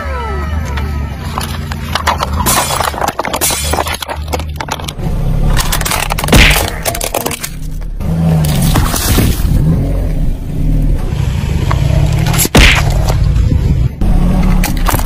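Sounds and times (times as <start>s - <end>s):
plastic toy crunching: 1.3s - 9.6s, 14.5s - 15.0s
tyre crushing plastic cups: 1.3s - 9.6s, 14.5s - 15.0s.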